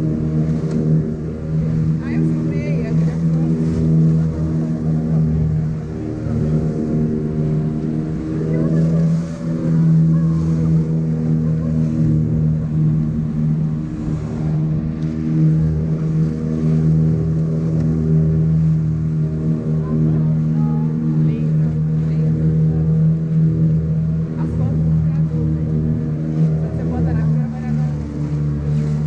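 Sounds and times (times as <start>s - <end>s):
boat engine droning: 0.0s - 29.0s.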